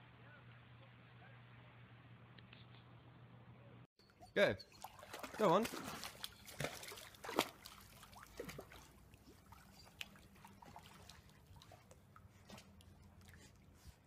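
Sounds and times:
water trickling: 0:04.2 - 0:13.4
pool water splashing: 0:04.4 - 0:14.0.

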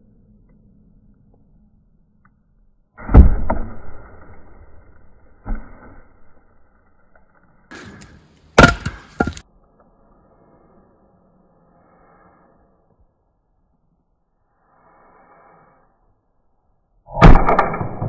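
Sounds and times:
wood cracking: 0:07.7 - 0:09.4.

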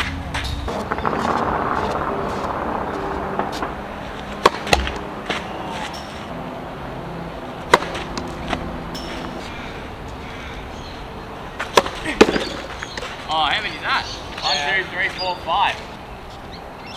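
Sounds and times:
tennis ball bouncing on clay: 0:00.0 - 0:06.0, 0:07.6 - 0:09.4, 0:11.6 - 0:13.2
racket striking ball: 0:00.0 - 0:06.4, 0:07.5 - 0:09.6, 0:11.6 - 0:13.3.

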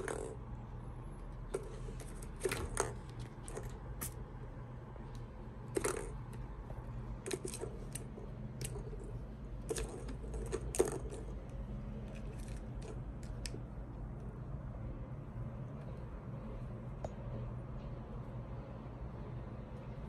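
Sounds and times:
plastic balls clacking in track: 0:00.0 - 0:00.4, 0:05.7 - 0:06.4, 0:07.2 - 0:11.4
low steady hum: 0:00.0 - 0:20.0.

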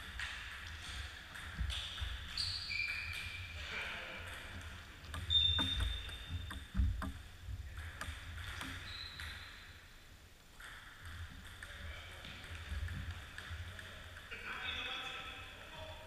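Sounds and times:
table tennis ball ticking: 0:04.3 - 0:09.4
brief high squeak: 0:08.8 - 0:09.5.

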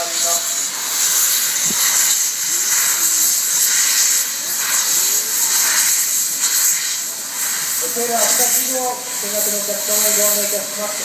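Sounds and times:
steam locomotive hissing steam: 0:00.0 - 0:11.0.

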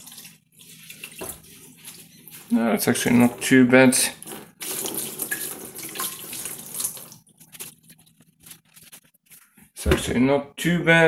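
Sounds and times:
small splashes and drips: 0:00.0 - 0:02.5, 0:04.2 - 0:08.3
liquid pouring into plastic bowl: 0:04.2 - 0:08.2.

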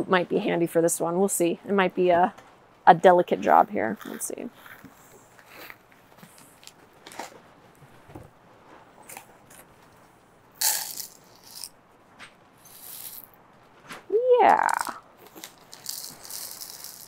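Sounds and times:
pebbles clicking and rattling: 0:10.6 - 0:11.7, 0:12.7 - 0:13.3, 0:14.5 - 0:17.0.

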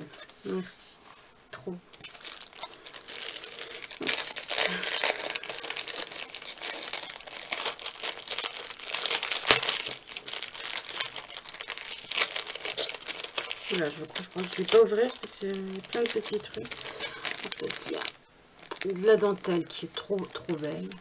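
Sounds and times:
plastic bag crinkling: 0:00.0 - 0:21.0.

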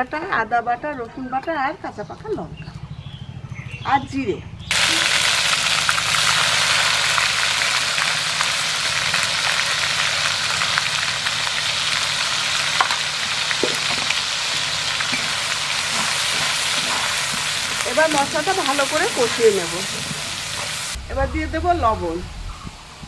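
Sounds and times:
paste sizzling in hot oil: 0:04.7 - 0:21.0
crackles and pops: 0:04.7 - 0:21.1.

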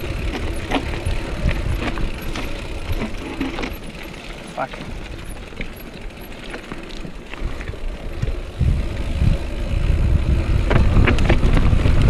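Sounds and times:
wind buffeting microphone: 0:00.0 - 0:03.9, 0:07.4 - 0:12.0
bike clicks and rattles: 0:00.0 - 0:12.0.

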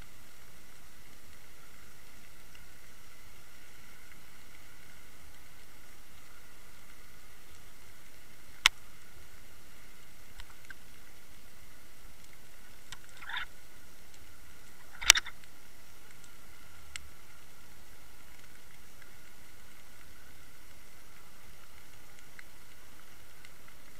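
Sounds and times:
sharp clicks: 0:14.8 - 0:15.5.

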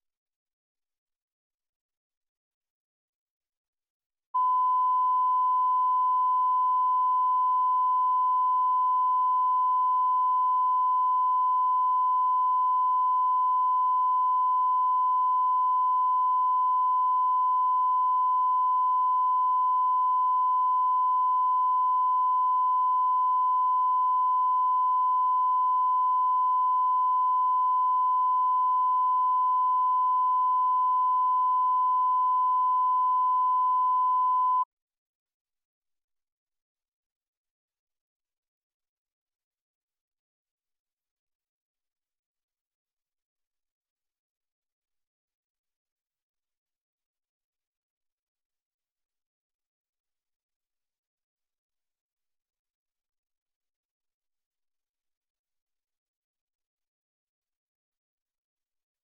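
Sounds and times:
steady reference tone beep: 0:04.4 - 0:34.7.

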